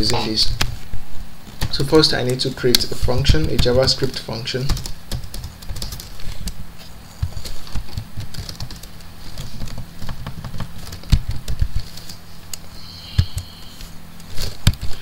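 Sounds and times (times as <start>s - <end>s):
steady low hum: 0.0s - 15.0s
keyboard typing: 4.7s - 6.6s, 7.2s - 12.2s, 13.0s - 13.8s.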